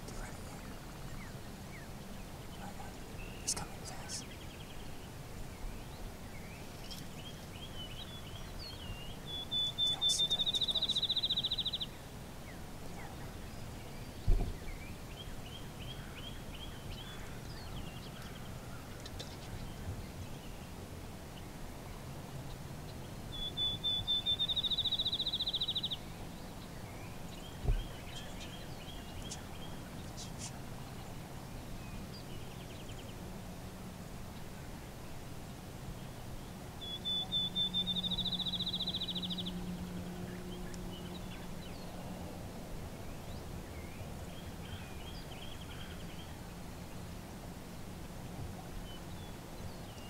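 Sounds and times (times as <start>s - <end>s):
other birds chirping: 0.0s - 20.6s, 22.8s - 33.2s
songbird singing a trill: 0.0s - 20.8s, 21.4s - 33.3s, 34.3s - 50.0s
low thump: 14.3s - 14.6s.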